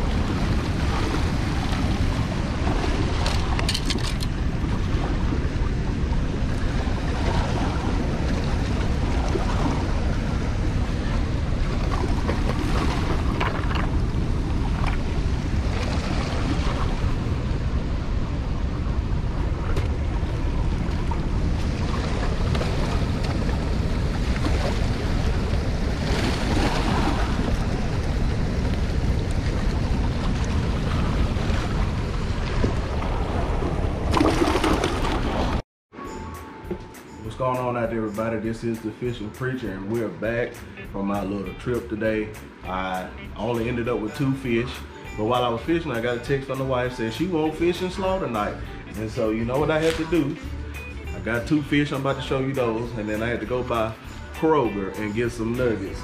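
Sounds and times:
wind buffeting microphone: 0.0s - 35.6s.

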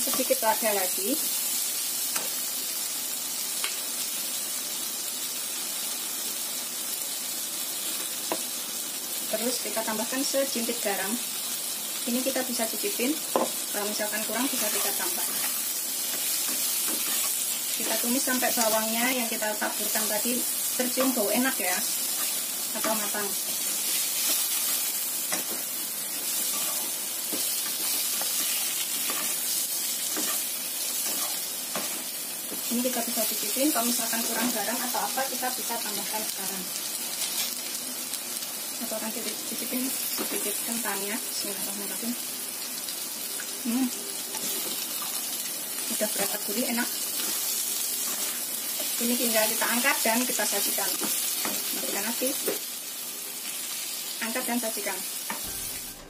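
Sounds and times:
vegetables sizzling in oil: 0.0s - 56.0s
spatula scraping across pan: 14.5s - 18.1s, 22.0s - 32.7s, 47.1s - 49.0s.

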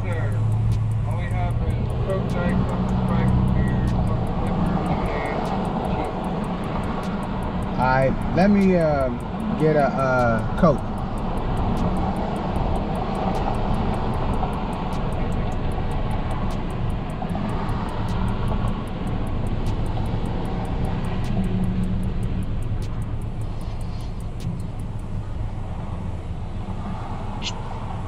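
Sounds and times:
car engine idling: 0.0s - 28.0s
outdoor noise: 0.0s - 28.0s.

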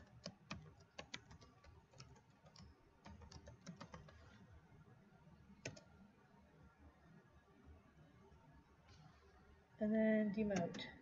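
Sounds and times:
keyboard typing: 0.0s - 4.4s, 5.6s - 5.9s, 10.4s - 11.0s.

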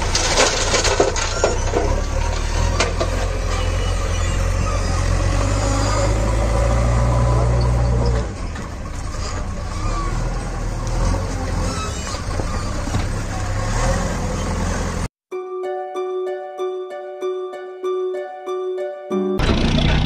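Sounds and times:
vehicle engine rumbling: 0.0s - 15.1s, 19.4s - 20.0s.

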